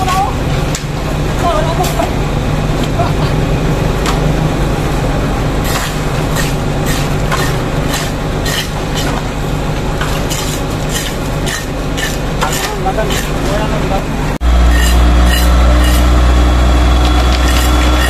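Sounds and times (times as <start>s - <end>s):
diesel engine running: 0.0s - 18.0s
rakes scraping wet concrete: 5.6s - 9.3s, 10.0s - 18.0s.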